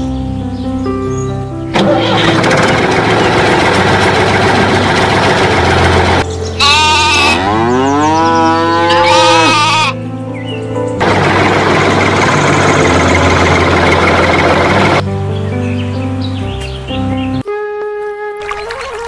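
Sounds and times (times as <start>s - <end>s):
background music: 0.0s - 19.0s
engine sound effect: 1.7s - 6.2s, 11.0s - 15.0s
bleating animal call: 6.6s - 10.0s.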